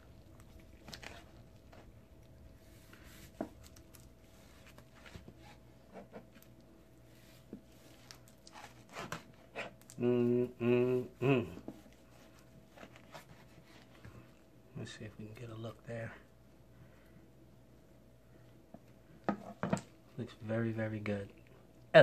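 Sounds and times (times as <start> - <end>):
man humming: 9.9 - 11.7.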